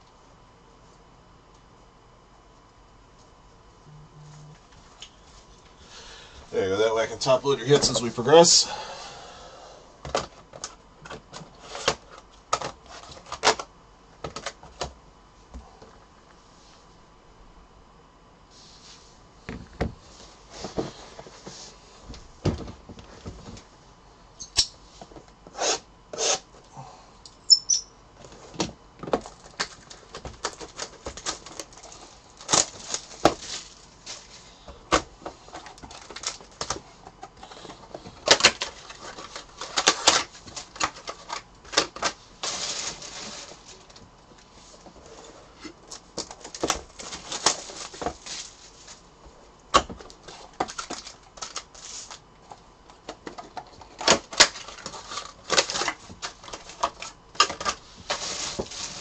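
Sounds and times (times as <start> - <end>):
plastic wrapping crinkling: 29.2 - 34.4, 38.2 - 44.0, 45.9 - 49.1, 54.2 - 59.0.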